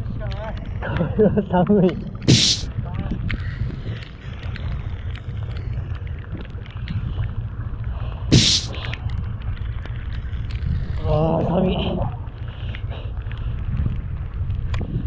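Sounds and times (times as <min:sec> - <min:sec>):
wind rumble on open sea: 0:00.0 - 0:15.0
small ticks: 0:01.8 - 0:11.1, 0:12.2 - 0:15.0
loud sharp knock: 0:02.3 - 0:02.7, 0:08.3 - 0:08.7.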